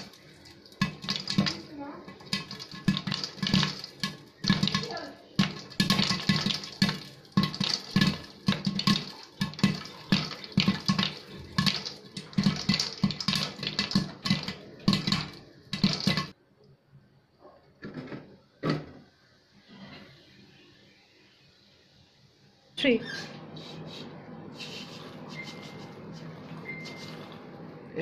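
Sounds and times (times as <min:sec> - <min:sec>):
hot oil sizzling: 0:00.0 - 0:16.4, 0:23.6 - 0:28.0
popcorn popping: 0:00.0 - 0:16.4, 0:25.2 - 0:27.5.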